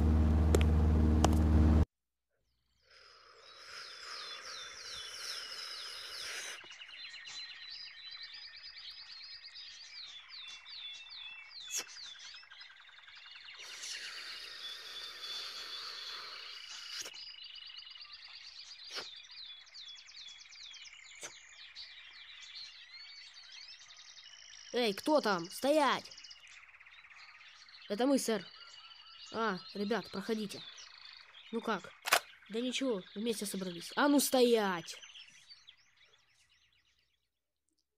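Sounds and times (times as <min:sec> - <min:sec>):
insect-like background: 0:02.4 - 0:37.8
small birds chirping and whistling: 0:02.9 - 0:37.2
sharp clicks: 0:31.9 - 0:32.3.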